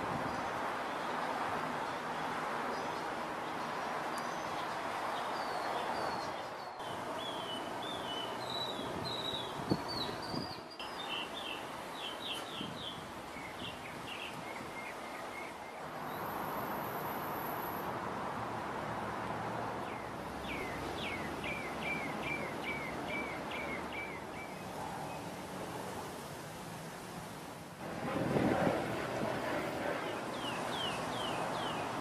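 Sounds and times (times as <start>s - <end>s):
steady outdoor hiss: 0.0s - 32.0s
birds chirping: 1.9s - 16.4s, 19.8s - 25.3s, 29.8s - 32.0s.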